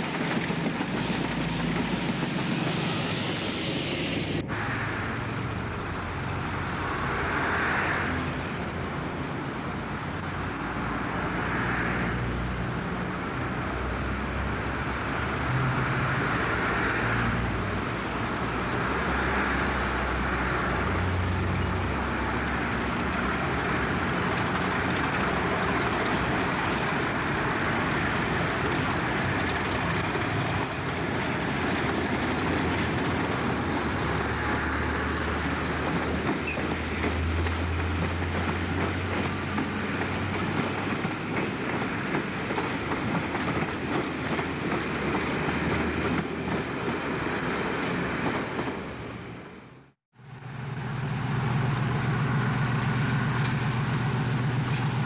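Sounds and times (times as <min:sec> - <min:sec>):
train wheels clattering over rail joints: 0:00.0 - 0:03.2, 0:22.4 - 0:34.6, 0:35.3 - 0:48.9
diesel locomotive engine running: 0:17.6 - 0:49.3, 0:50.2 - 0:55.0.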